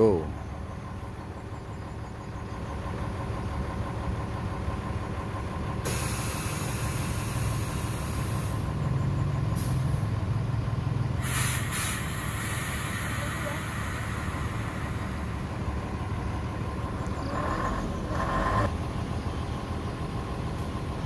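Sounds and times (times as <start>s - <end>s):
diesel engine running: 0.0s - 21.0s
loud hiss: 5.8s - 8.7s, 11.2s - 15.5s.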